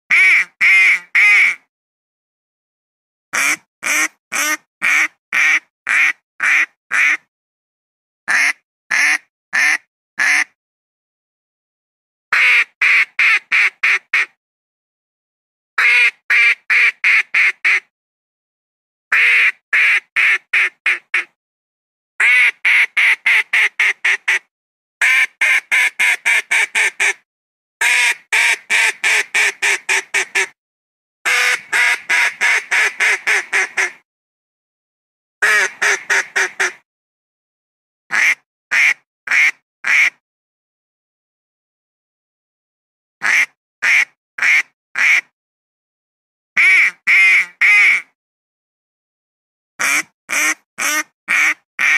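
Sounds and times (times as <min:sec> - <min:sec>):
duck quacking: 0:00.1 - 0:01.6, 0:03.4 - 0:07.2, 0:08.3 - 0:10.6, 0:12.3 - 0:14.3, 0:15.8 - 0:17.9, 0:19.1 - 0:21.3, 0:22.2 - 0:27.2, 0:27.8 - 0:30.6, 0:31.3 - 0:34.0, 0:35.4 - 0:36.8, 0:38.1 - 0:40.2, 0:43.2 - 0:45.3, 0:46.6 - 0:48.1, 0:49.8 - 0:51.9.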